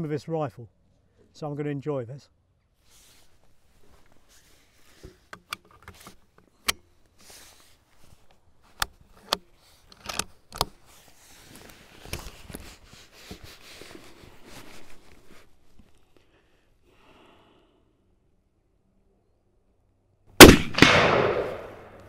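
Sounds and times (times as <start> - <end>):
rustling: 2.8 - 16.3
rifle bolt clicking and clacking: 5.3 - 6.9, 8.8 - 10.8.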